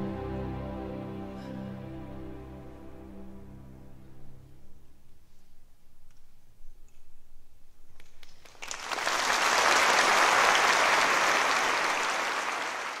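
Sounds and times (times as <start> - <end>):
audience applause: 8.4 - 13.0.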